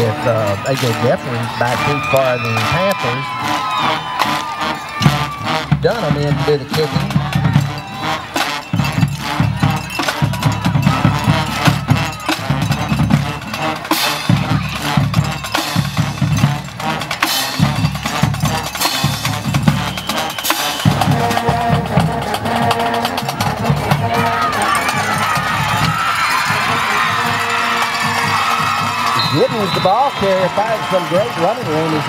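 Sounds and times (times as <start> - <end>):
percussion-heavy music: 0.0 - 32.0
repeating drum beat: 0.0 - 32.0.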